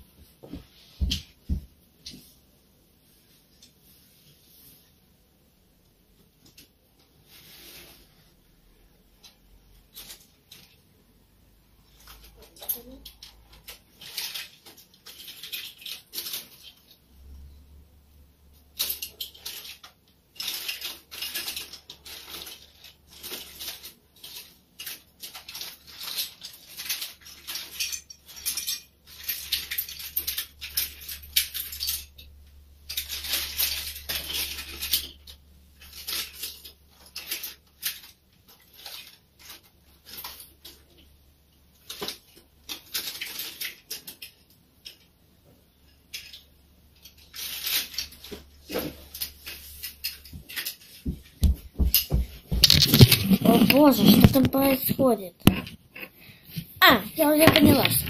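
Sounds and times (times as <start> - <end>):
plastic toys clicking and clattering: 9.0 - 11.0, 11.8 - 17.1, 18.5 - 58.0.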